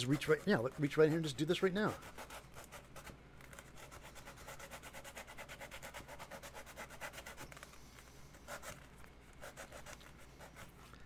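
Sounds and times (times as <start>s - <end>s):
hand tool scraping foam: 0.0s - 2.4s.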